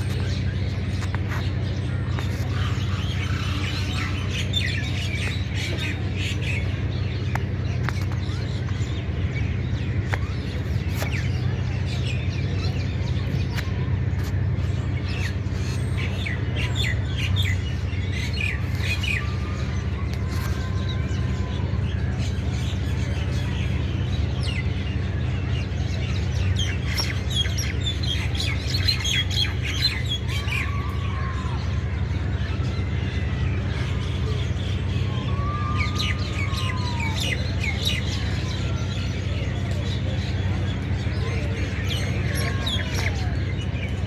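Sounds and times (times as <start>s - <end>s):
birds chirping: 0.0s - 44.0s
steady low hum: 0.0s - 44.0s.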